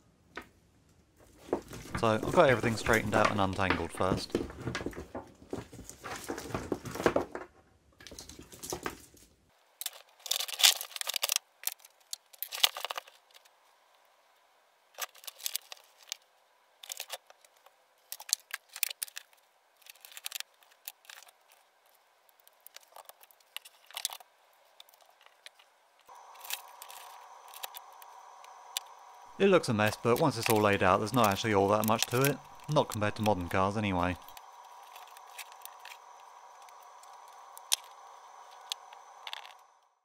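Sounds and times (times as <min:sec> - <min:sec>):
faint steady hum: 0:00.0 - 0:40.0
plastic connectors clacking: 0:09.8 - 0:13.4, 0:16.8 - 0:21.6, 0:22.3 - 0:24.2, 0:29.6 - 0:39.6.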